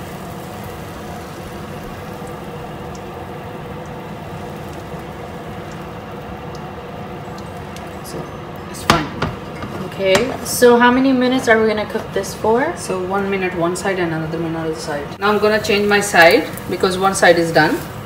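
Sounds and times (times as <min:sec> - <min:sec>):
batter sizzling in frying pan: 0:00.0 - 0:09.6, 0:15.2 - 0:18.0.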